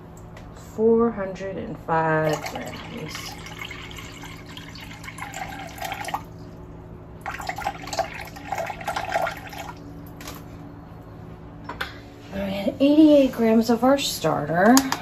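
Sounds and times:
water pouring into a bowl: 0:02.2 - 0:06.5, 0:07.2 - 0:09.8.

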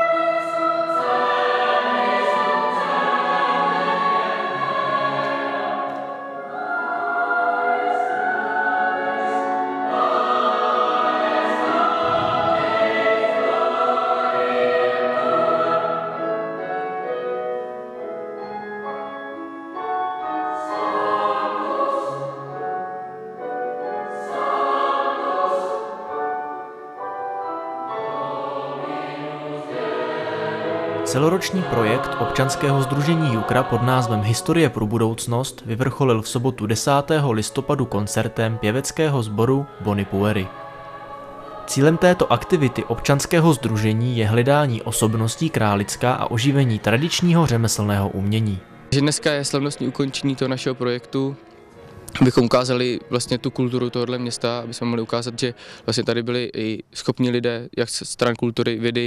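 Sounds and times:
boys' choir singing: 0:00.0 - 0:16.7, 0:20.2 - 0:22.8, 0:23.8 - 0:26.4, 0:27.8 - 0:48.1.

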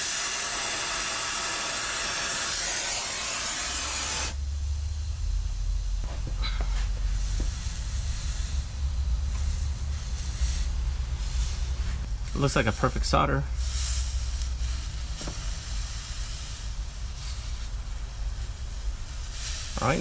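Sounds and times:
torch flame hissing: 0:00.0 - 0:20.0
low rumble: 0:04.3 - 0:19.4.

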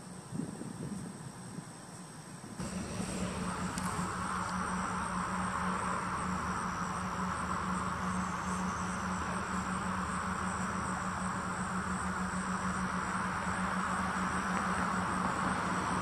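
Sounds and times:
insects chirring: 0:00.0 - 0:16.0
steady low hum: 0:00.0 - 0:16.0.

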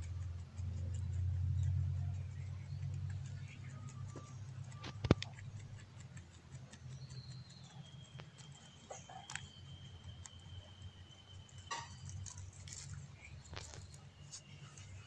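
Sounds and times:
low steady hum: 0:00.0 - 0:15.0
rabbit nibbling leaves: 0:00.0 - 0:15.0
thin high steady tone: 0:08.6 - 0:12.4.

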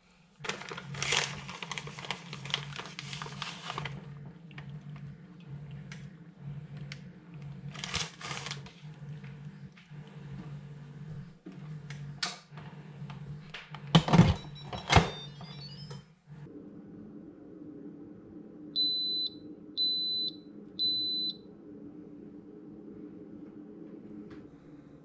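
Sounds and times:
high electronic beeps: 0:14.4 - 0:16.0, 0:18.8 - 0:21.4.

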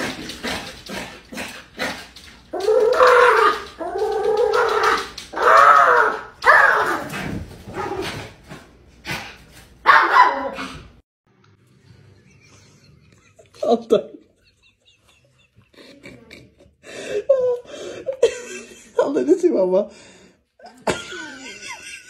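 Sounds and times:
small dog barking: 0:05.4 - 0:07.1, 0:09.8 - 0:10.7.

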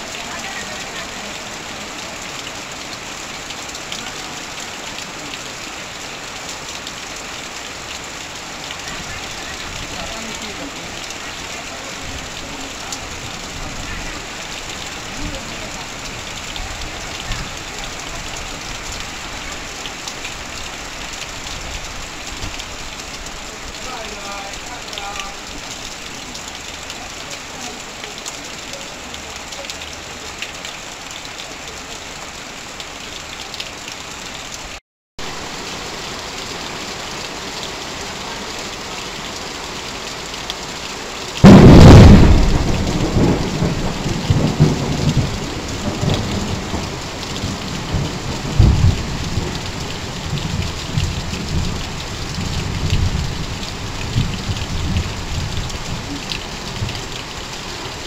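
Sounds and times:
heavy rain on tin roof: 0:00.0 - 0:58.0
water pouring off roof: 0:00.0 - 0:58.0
thunderclap and rumble: 0:41.4 - 0:56.9.

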